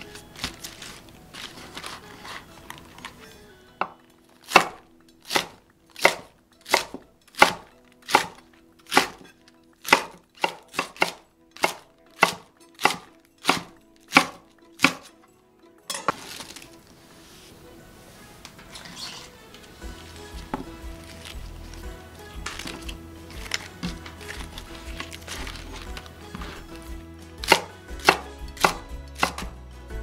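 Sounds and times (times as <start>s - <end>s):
knife chopping cabbage on wooden board: 4.4s - 15.1s, 20.3s - 29.6s.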